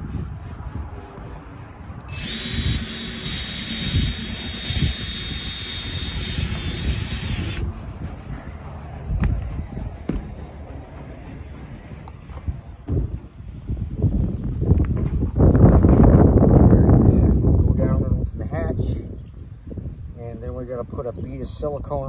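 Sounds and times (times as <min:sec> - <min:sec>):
cordless drill whining: 0:02.1 - 0:07.7.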